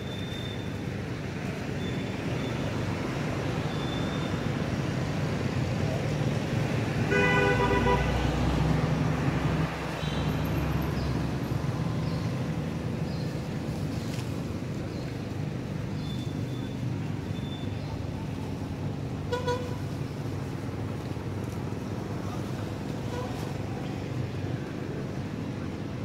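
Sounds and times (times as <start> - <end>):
road traffic rumble: 0.0 - 26.0
passing vehicle rumble: 1.3 - 26.0
vehicle horn toot: 7.1 - 8.2, 19.3 - 19.8.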